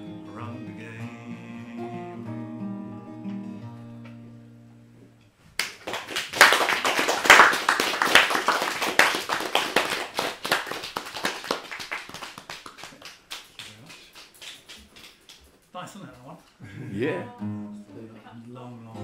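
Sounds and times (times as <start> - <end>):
audience applauding: 5.6 - 15.5.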